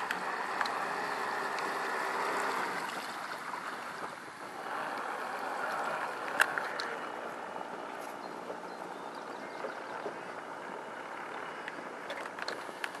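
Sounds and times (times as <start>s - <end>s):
model boat motor rushing hiss: 0.0s - 7.6s.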